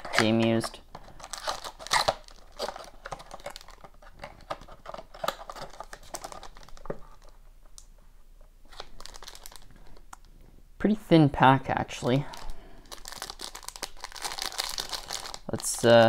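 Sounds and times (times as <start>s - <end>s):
foil wrapper crinkling: 0.1s - 7.4s, 8.7s - 10.0s, 12.3s - 16.0s.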